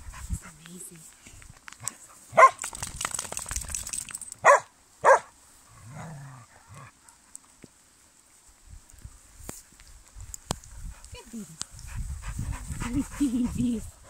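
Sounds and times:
dogs barking: 2.4s - 2.6s, 4.4s - 5.3s.

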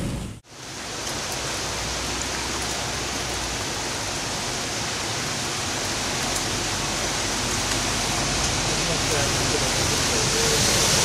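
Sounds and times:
heavy rain: 0.0s - 11.0s
running floodwater: 0.4s - 11.0s.

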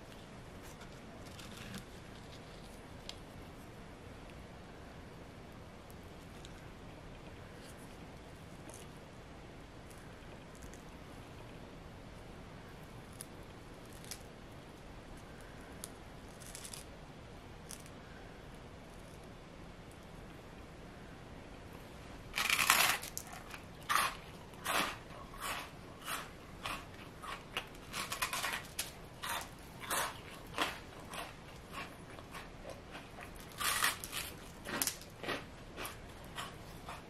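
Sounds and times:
crunchy bite and chewing: 22.4s - 37.0s.

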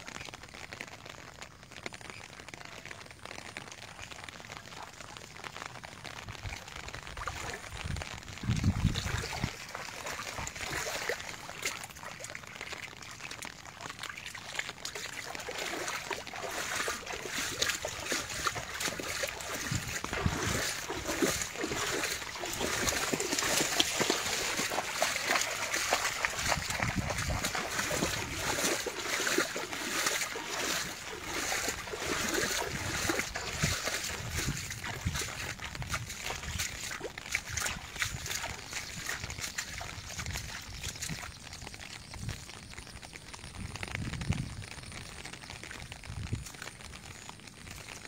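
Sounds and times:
floodwater splashing and trickling: 0.0s - 48.0s.

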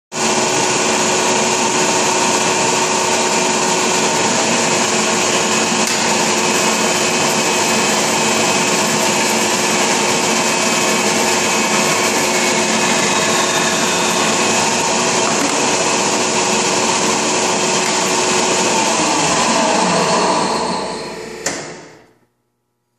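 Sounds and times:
band saw whining: 0.2s - 22.0s.

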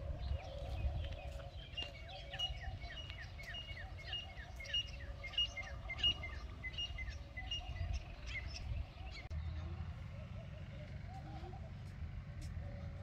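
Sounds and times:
small bird calling: 0.0s - 12.0s.

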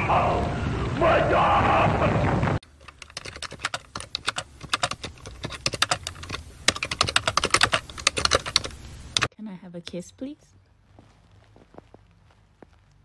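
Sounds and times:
keyboard keys clacking: 2.7s - 9.3s.

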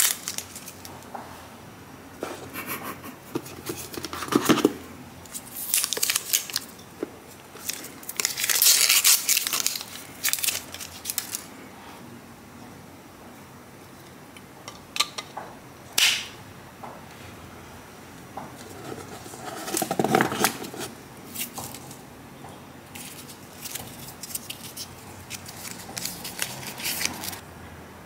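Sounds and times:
cable and paper rustling: 7.6s - 11.5s, 18.6s - 21.9s, 23.0s - 27.4s.

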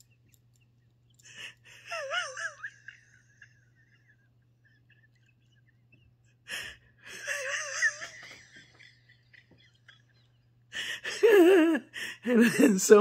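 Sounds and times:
woman laughing quietly: 0.0s - 12.9s
breathing: 1.2s - 1.9s, 6.5s - 7.1s, 10.7s - 11.1s, 11.9s - 12.3s.

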